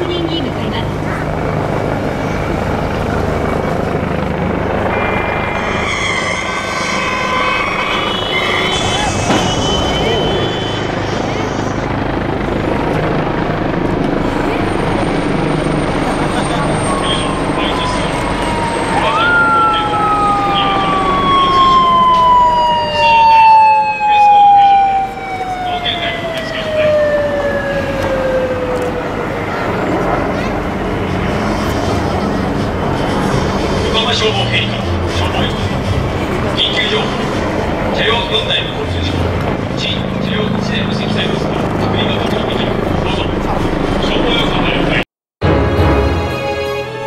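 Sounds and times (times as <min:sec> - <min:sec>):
motorcycle siren wailing: 0:00.0 - 0:31.3, 0:33.3 - 0:45.0
steady background noise: 0:00.0 - 0:45.0
helicopter rotor throbbing: 0:00.0 - 0:46.4
steady high tones: 0:04.1 - 0:28.6.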